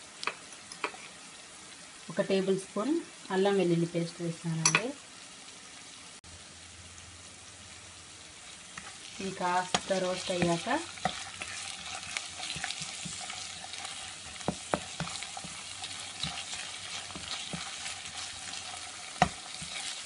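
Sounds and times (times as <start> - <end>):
vegetables sizzling in hot oil: 0.0 - 20.0
spatula knocking against pan: 14.3 - 15.6, 19.2 - 19.8.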